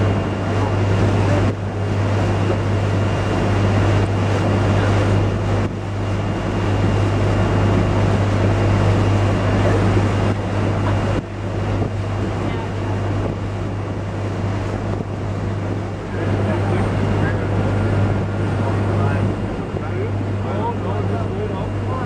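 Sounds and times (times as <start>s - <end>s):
boat engine humming: 0.0s - 22.0s
wind and water rushing: 0.0s - 22.0s.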